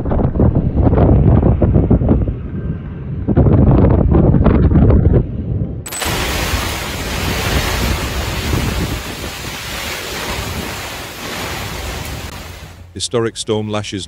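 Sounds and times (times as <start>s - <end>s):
wind rumble on microphone: 0.0s - 12.8s
gale-force wind hissing: 5.9s - 12.8s
driving rain on deck: 5.9s - 12.9s.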